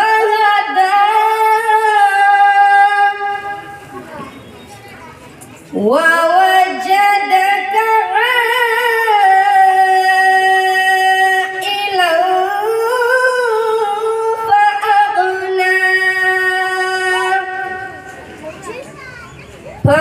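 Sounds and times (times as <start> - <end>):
boy chanting through a microphone: 0.0 - 19.1, 19.8 - 20.0.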